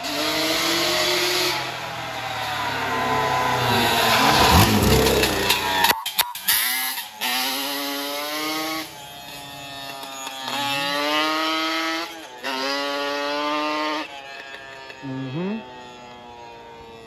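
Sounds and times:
quad engines accelerating: 0:00.0 - 0:17.0.

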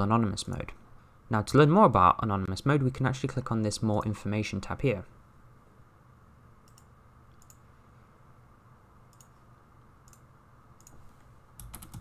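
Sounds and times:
low steady hiss: 0:00.0 - 0:12.0
computer mouse clicks: 0:06.6 - 0:07.6, 0:09.1 - 0:09.4, 0:10.0 - 0:11.0, 0:11.6 - 0:12.0.

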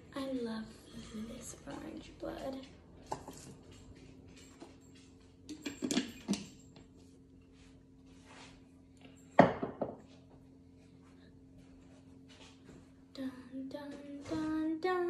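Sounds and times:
painting supplies clinking on table: 0:03.1 - 0:07.0.

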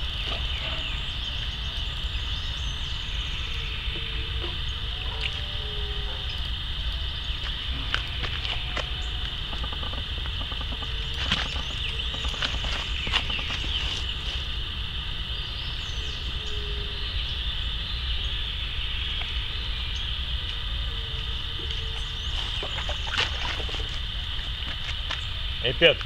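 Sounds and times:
insects chirring: 0:00.0 - 0:26.0
water splashing: 0:22.4 - 0:24.6.

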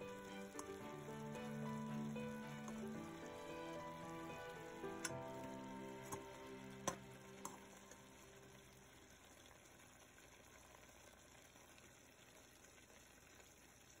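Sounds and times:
background music: 0:00.0 - 0:08.8
faint steady hiss: 0:00.0 - 0:14.0.

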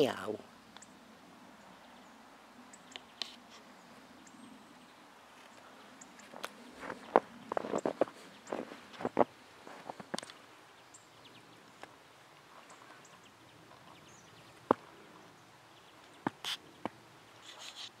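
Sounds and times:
cat paws crunching snow: 0:06.2 - 0:10.2, 0:17.4 - 0:18.0.

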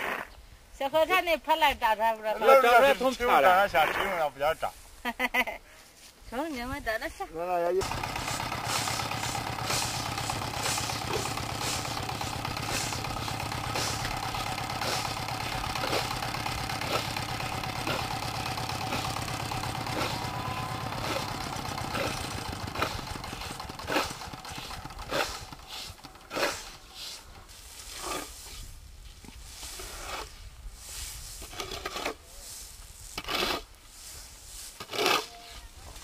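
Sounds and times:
engine idling: 0:07.8 - 0:27.0
grain swept on hard floor: 0:25.8 - 0:31.6, 0:32.2 - 0:33.2, 0:33.8 - 0:34.9.

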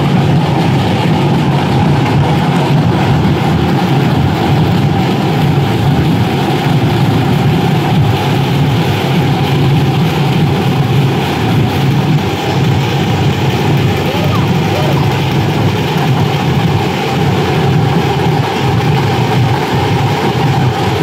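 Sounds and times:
vehicle engine rumble: 0:00.0 - 0:21.0
crowd din: 0:08.9 - 0:17.2.

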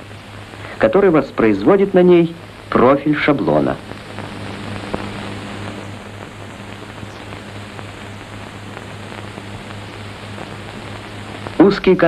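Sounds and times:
film soundtrack hiss: 0:00.0 - 0:12.0
low hum: 0:00.0 - 0:12.0
faint clicks: 0:03.8 - 0:11.7.

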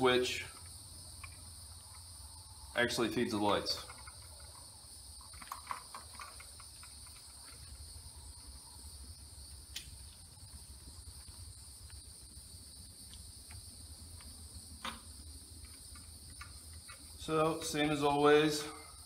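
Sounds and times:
high-pitched background whine: 0:00.0 - 0:19.0
sharp clicks: 0:00.5 - 0:02.0.

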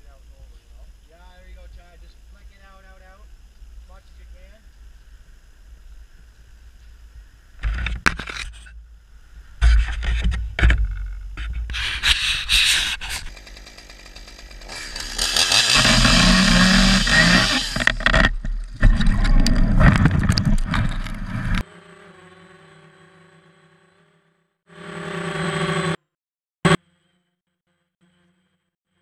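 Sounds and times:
rustling and knocks on camera: 0:09.6 - 0:12.0
chainsaw cutting: 0:11.4 - 0:21.6.

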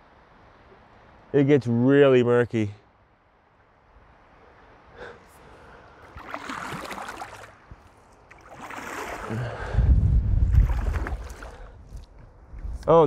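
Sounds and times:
paddle splashing in water: 0:06.0 - 0:09.7, 0:10.5 - 0:11.7
wind rumble on microphone: 0:09.3 - 0:13.0.

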